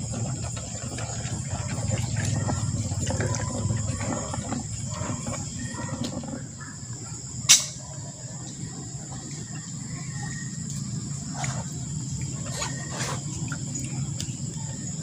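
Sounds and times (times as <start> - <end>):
low rumbling noise: 0.0 - 10.0
insects chirring: 0.0 - 15.0.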